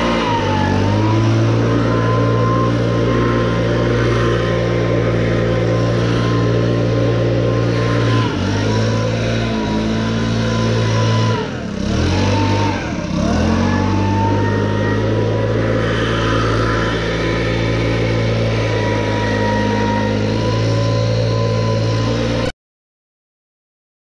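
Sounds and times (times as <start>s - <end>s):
leaf blower running: 0.0s - 22.5s.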